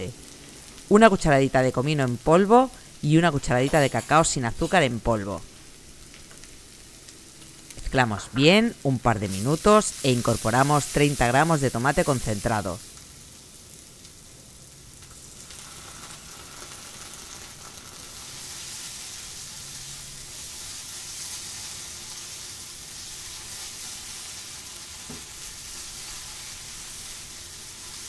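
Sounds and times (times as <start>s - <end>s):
food sizzling in a frying pan: 0.0s - 28.0s
spatula stirring in pan: 17.3s - 28.0s.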